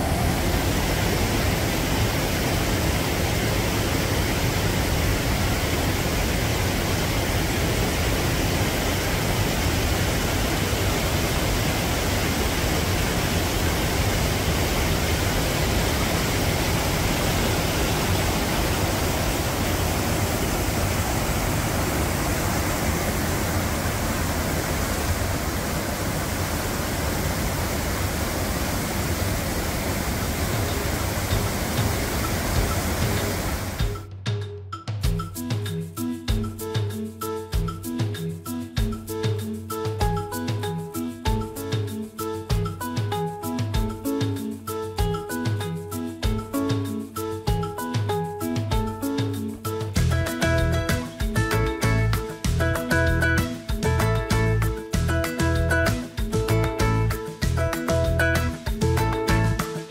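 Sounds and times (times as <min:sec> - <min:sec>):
water rushing over rocks: 0:00.0 - 0:34.0.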